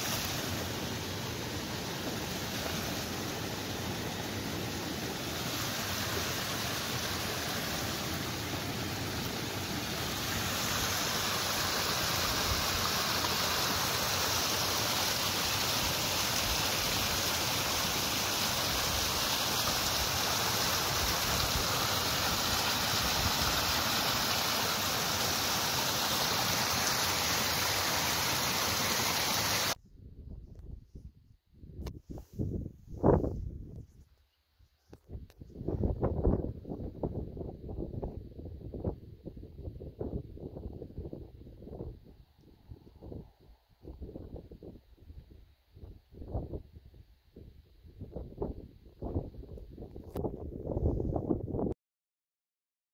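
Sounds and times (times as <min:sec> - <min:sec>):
stream rushing over cascade: 0:00.0 - 0:29.8.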